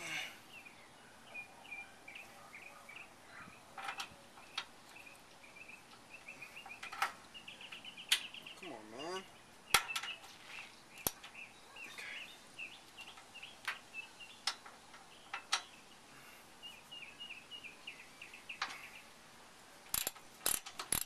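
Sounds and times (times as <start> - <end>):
birds chirping: 0.0 - 19.5
ratchet wrench clicking: 19.9 - 21.0.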